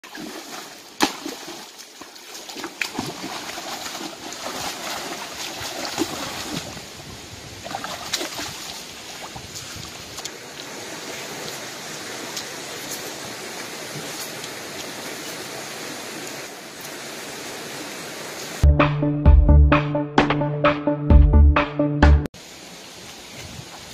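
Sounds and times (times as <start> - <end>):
stream water flowing: 0.0 - 18.6.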